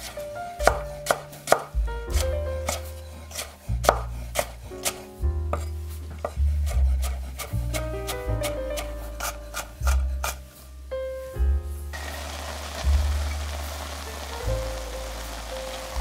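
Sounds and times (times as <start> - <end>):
knife chopping on wooden board: 0.0 - 10.4
background music with bass: 0.0 - 16.0.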